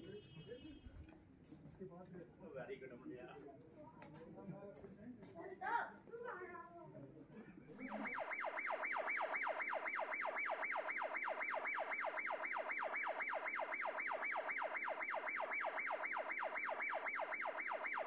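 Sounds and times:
electronic siren yelping: 7.8 - 18.0.

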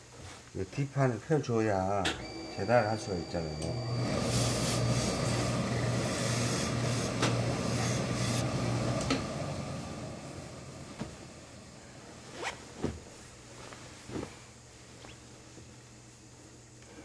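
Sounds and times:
fabric rustling: 12.2 - 15.4.

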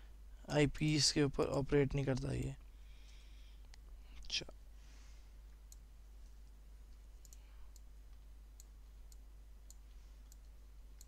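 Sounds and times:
faint mouse clicks: 5.5 - 11.0.

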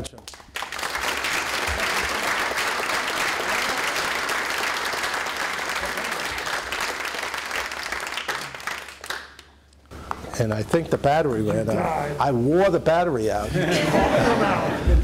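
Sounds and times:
audience applauding: 0.3 - 10.2.

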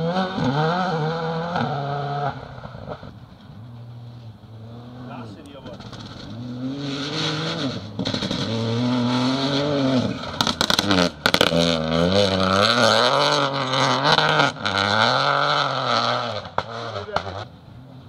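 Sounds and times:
rally car engine revving: 0.0 - 18.0
exhaust cracks: 5.1 - 15.2.

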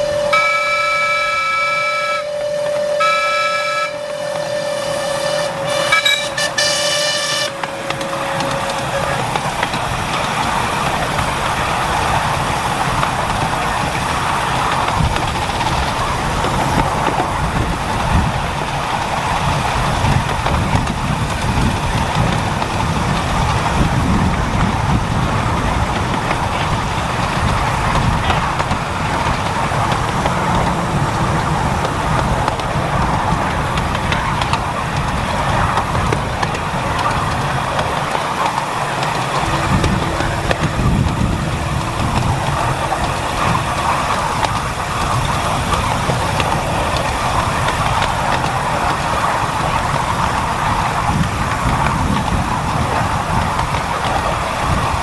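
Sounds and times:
short high whistle blasts: 0.0 - 7.6
long steady train whistle: 0.0 - 55.0
train rumbling along track: 0.0 - 55.0.

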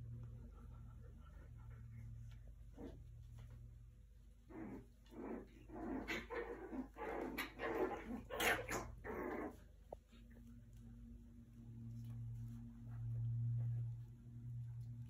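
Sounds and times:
dogs barking and growling: 4.4 - 10.5.

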